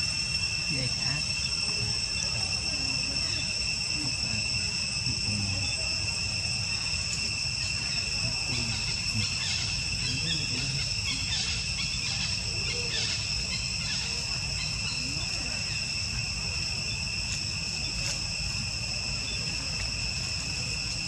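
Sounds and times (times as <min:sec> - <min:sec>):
insect chorus shrilling: 0:00.0 - 0:21.0.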